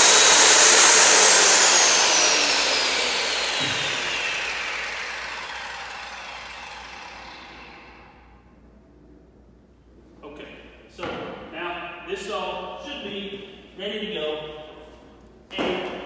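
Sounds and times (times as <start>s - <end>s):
circular saw whine: 0.0s - 8.3s.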